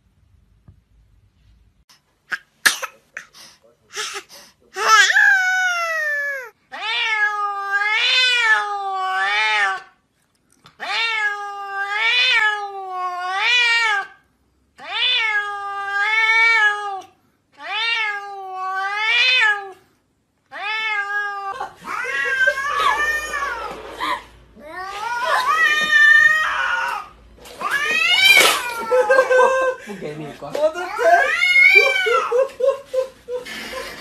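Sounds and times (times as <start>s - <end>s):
cat meowing: 4.8s - 9.9s, 10.8s - 14.2s, 14.8s - 19.8s, 20.5s - 23.8s, 24.6s - 29.1s, 30.9s - 32.3s.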